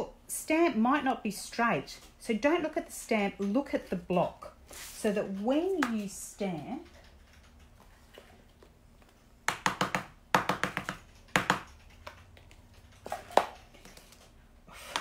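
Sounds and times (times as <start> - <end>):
stamp tapping on ink pad: 9.5 - 11.7.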